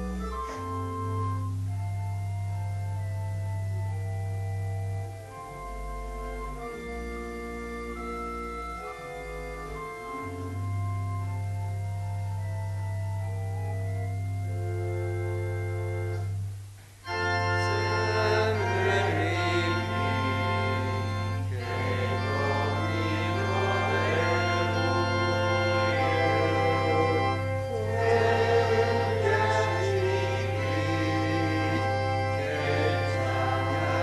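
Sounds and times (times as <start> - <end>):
church organ playing: 0.0 - 34.0
congregation singing: 17.1 - 34.0.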